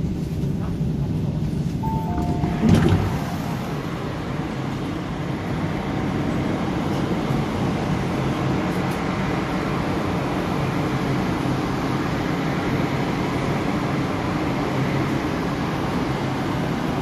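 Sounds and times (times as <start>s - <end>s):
low rumble: 1.8s - 4.6s.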